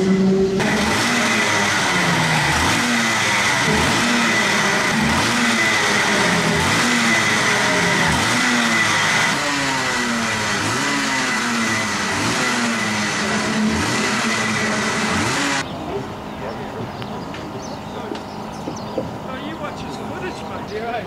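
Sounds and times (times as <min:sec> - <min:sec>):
two-stroke kart engine revving: 0:00.0 - 0:16.3.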